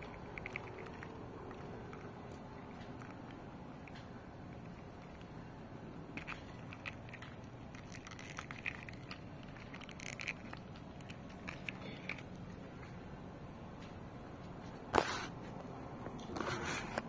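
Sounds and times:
hands handling plastic: 0:06.1 - 0:13.0.

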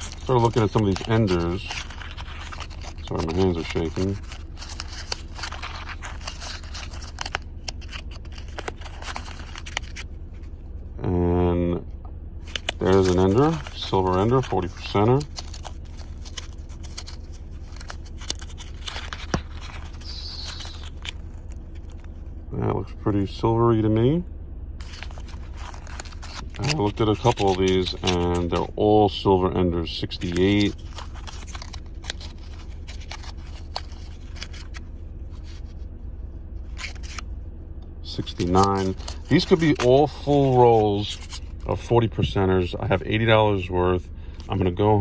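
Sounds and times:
paper wrapper crinkling: 0:00.0 - 0:10.6, 0:12.4 - 0:22.3, 0:24.8 - 0:28.9, 0:29.9 - 0:35.9, 0:36.6 - 0:37.3, 0:38.1 - 0:42.2
steady low hum: 0:00.0 - 0:45.0.

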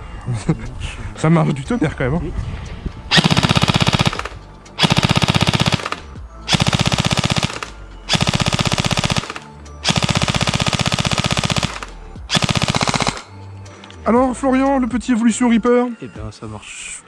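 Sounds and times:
airsoft gun firing full auto: 0:03.1 - 0:13.3.

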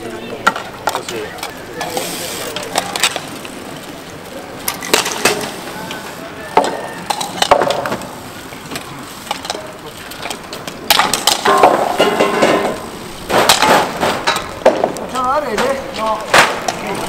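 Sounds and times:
mallets and bikes clashing: 0:00.0 - 0:03.5, 0:04.6 - 0:17.0
people shouting: 0:05.6 - 0:07.2.

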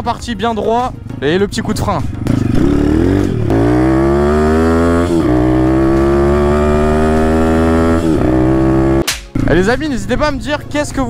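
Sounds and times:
motorbike engine revving: 0:01.1 - 0:09.8.

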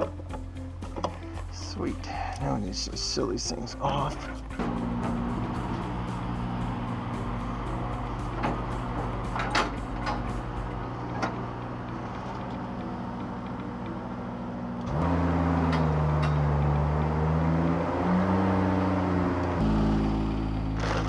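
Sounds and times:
scissor lift motor running: 0:04.3 - 0:15.0.

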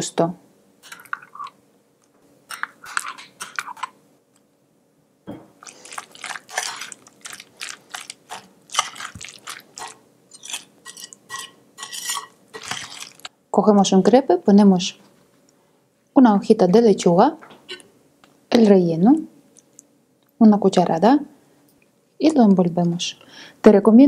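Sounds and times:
spoon stirring thick salad: 0:02.5 - 0:04.0, 0:05.6 - 0:13.3.

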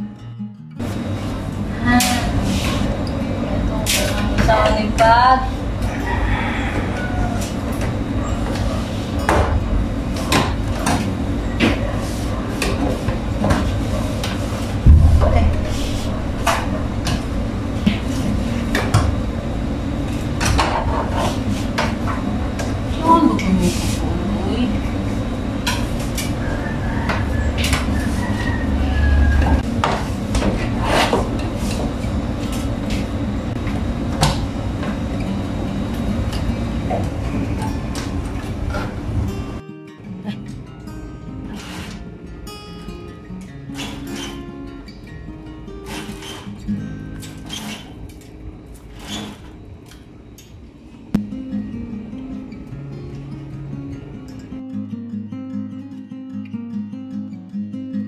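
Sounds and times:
steady low rumble: 0:14.8 - 0:20.4.

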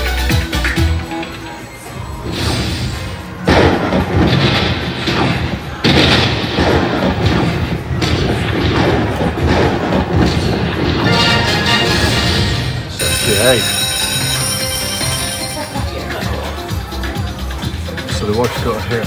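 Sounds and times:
booming hits: 0:02.2 - 0:13.0
electronic jingle: 0:11.1 - 0:16.6.

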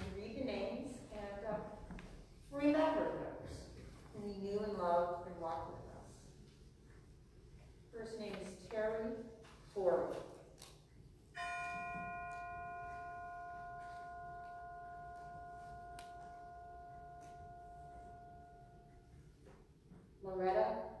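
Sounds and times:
bell ringing: 0:11.4 - 0:19.3.

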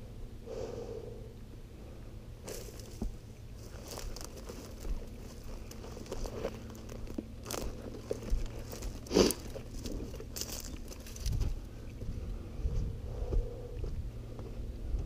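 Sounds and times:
dry stems rustling and crackling: 0:02.4 - 0:11.7
footsteps crunching on dry ground: 0:02.4 - 0:15.0.

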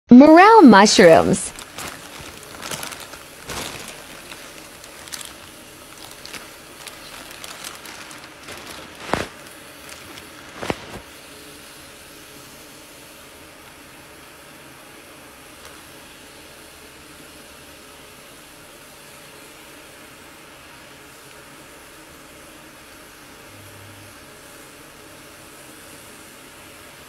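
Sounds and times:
faint steady hiss: 0:00.3 - 0:13.8
plastic bag rustling and crinkling: 0:01.0 - 0:11.2.

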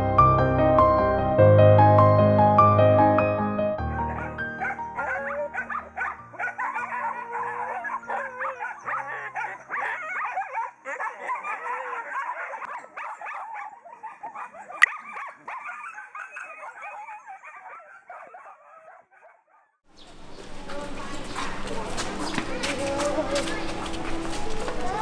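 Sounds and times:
piano music: 0:00.0 - 0:09.3, 0:21.4 - 0:25.0
dogs crying in chorus: 0:04.0 - 0:19.7.

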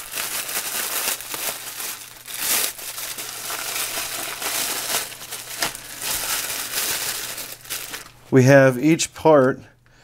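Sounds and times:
plastic bags crinkling: 0:00.0 - 0:08.3.

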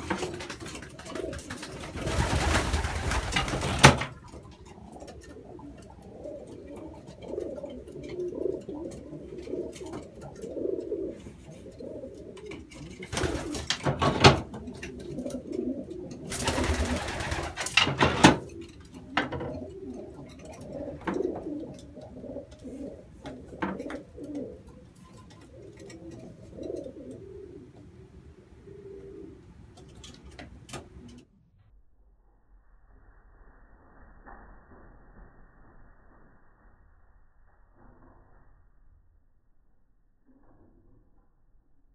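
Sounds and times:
wings flapping: 0:00.0 - 0:05.6, 0:12.4 - 0:15.6, 0:16.2 - 0:19.3
pigeons cooing: 0:00.0 - 0:31.2.

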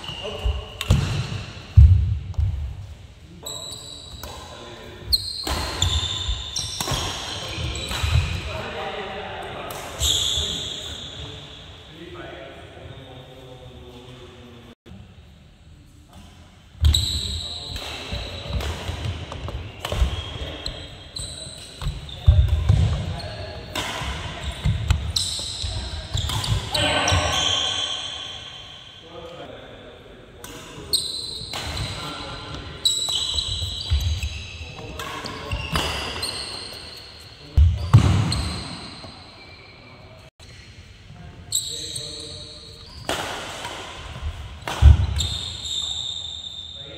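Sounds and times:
shoes squeaking on court: 0:00.0 - 0:01.5, 0:03.4 - 0:08.5, 0:16.8 - 0:28.6, 0:30.8 - 0:40.8, 0:41.5 - 0:43.2, 0:44.1 - 0:46.9
racket hitting shuttlecock: 0:05.4 - 0:08.4, 0:23.7 - 0:25.5, 0:43.0 - 0:45.5
players' voices: 0:05.7 - 0:15.1, 0:16.8 - 0:28.4
racket striking shuttlecock: 0:44.6 - 0:45.2.

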